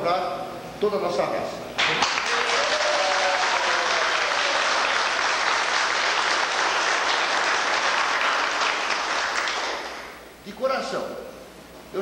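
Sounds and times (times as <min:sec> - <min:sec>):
crowd applauding: 0:01.8 - 0:10.2.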